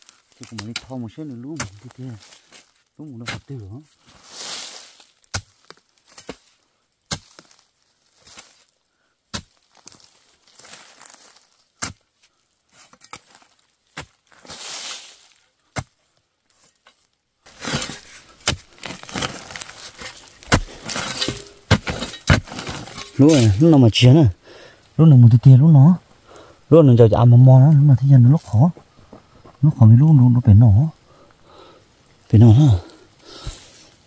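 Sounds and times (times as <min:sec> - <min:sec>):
spade scraping soil: 0:00.1 - 0:06.5, 0:12.7 - 0:24.1, 0:32.4 - 0:34.0
spade chopping into dry earth: 0:05.3 - 0:06.5, 0:07.1 - 0:07.6, 0:09.3 - 0:10.0, 0:11.8 - 0:12.0, 0:12.9 - 0:14.6, 0:15.7 - 0:16.0, 0:17.5 - 0:23.6, 0:33.4 - 0:33.7.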